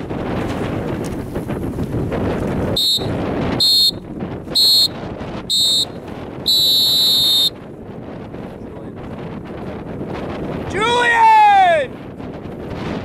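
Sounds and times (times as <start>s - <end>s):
wind rumble on microphone: 0.0s - 13.0s
electronic race-start horn beeps: 2.8s - 4.0s, 4.6s - 7.5s.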